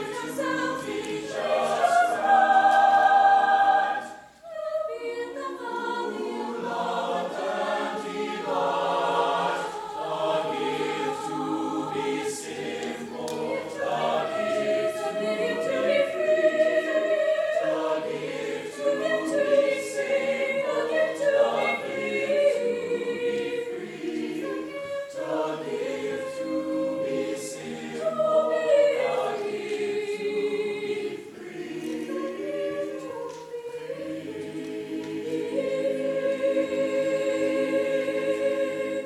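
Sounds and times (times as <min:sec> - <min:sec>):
choir singing a cappella: 0:00.0 - 0:39.0.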